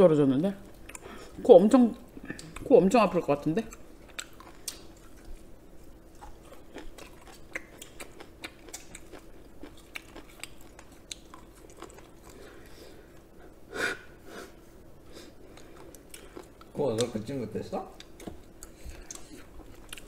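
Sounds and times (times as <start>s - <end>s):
faint steady hum: 0.0s - 20.0s
close chewing crunches: 6.1s - 12.6s, 18.0s - 20.0s.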